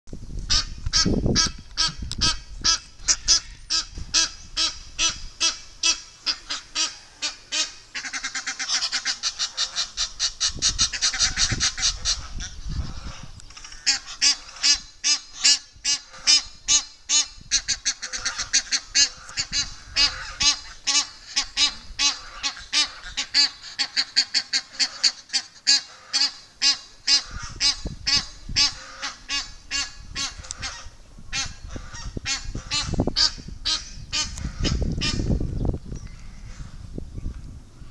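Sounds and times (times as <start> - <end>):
geese honking: 0.5 - 35.4.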